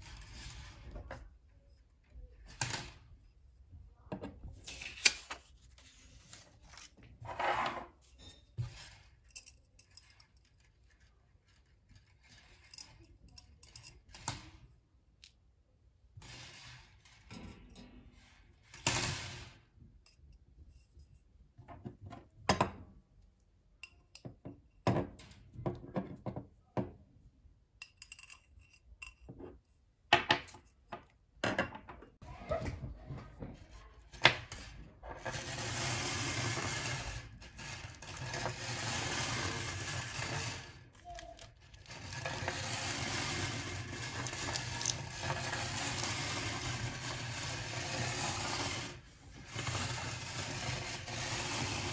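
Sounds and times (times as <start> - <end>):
wire coil scraping: 35.1 - 51.9.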